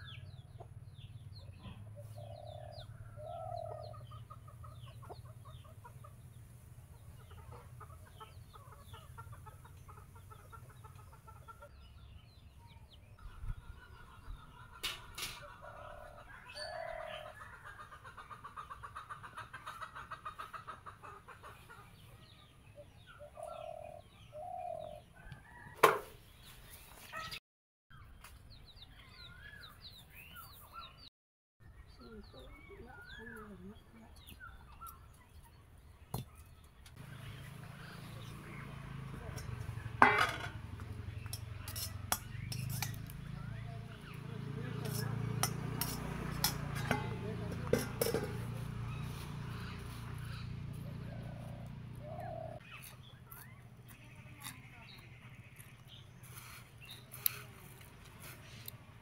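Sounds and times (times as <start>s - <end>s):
chickens clucking: 0.0s - 27.4s, 32.3s - 59.0s
small birds chirping: 0.0s - 59.0s.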